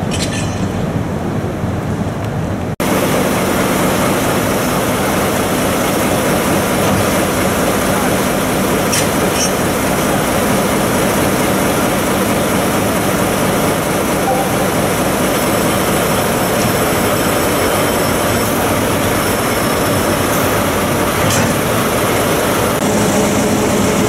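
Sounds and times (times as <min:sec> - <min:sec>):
diesel locomotive engine idling: 0:00.0 - 0:24.0.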